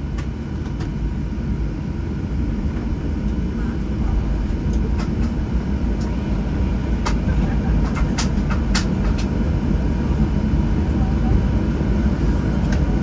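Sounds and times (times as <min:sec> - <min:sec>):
aircraft cabin low rumble: 0:00.0 - 0:13.0.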